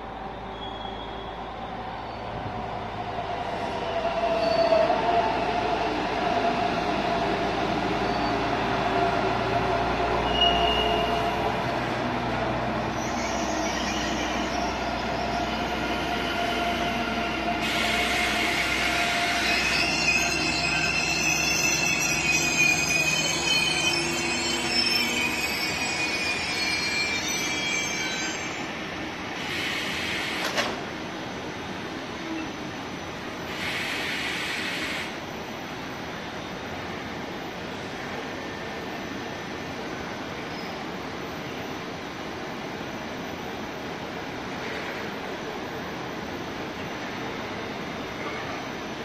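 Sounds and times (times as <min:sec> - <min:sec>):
train wheels squealing: 0:00.2 - 0:02.4, 0:03.5 - 0:11.8, 0:12.9 - 0:30.6, 0:32.1 - 0:35.3, 0:40.4 - 0:41.8, 0:46.2 - 0:49.0
train wagons rolling on tracks: 0:03.0 - 0:35.5.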